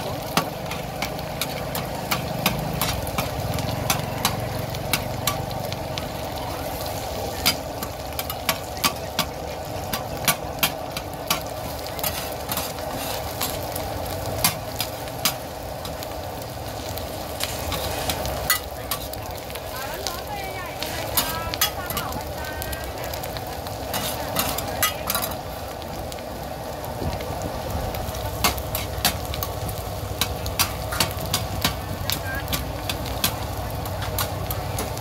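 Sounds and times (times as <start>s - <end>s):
frying sizzle: 0.0s - 35.0s
metal spatulas clanking on griddle: 0.3s - 5.4s, 7.4s - 11.4s, 23.9s - 25.4s, 30.2s - 31.8s.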